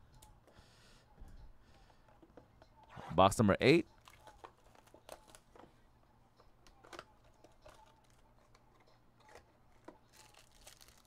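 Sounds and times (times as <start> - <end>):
plastic shrink wrap tearing: 10.1 - 11.0.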